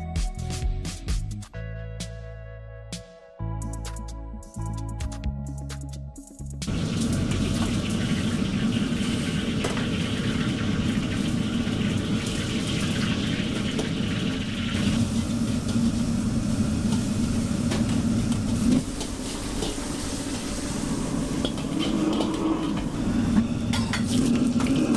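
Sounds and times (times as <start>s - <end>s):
gas burner rumble: 6.7s - 24.9s
water boiling: 6.7s - 24.9s.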